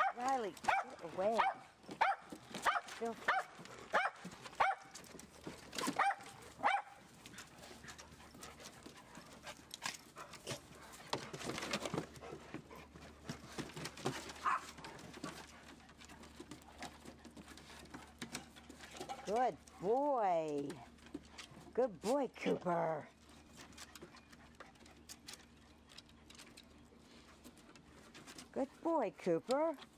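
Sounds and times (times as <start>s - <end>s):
dogs barking: 0.0s - 4.9s, 5.8s - 7.0s
dogs moving about: 0.0s - 22.6s.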